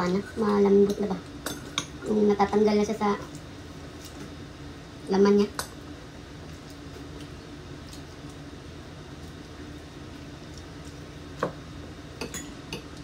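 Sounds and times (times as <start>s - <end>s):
room hum: 0.0s - 13.0s
cutlery tapping bowls: 12.2s - 12.9s.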